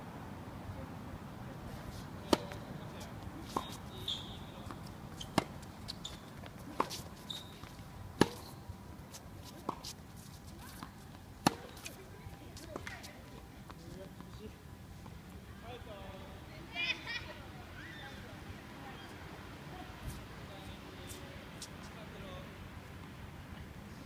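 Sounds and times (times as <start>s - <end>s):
tennis ball struck by rackets: 2.3s - 2.6s, 3.4s - 7.0s, 8.2s - 8.6s, 10.7s - 11.9s.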